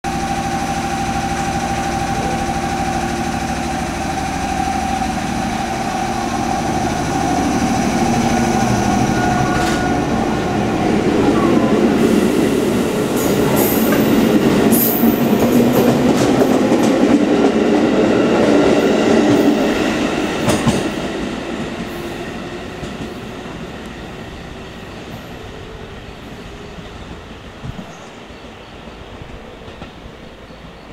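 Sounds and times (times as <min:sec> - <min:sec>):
electric train motor whine: 0:00.1 - 0:15.2.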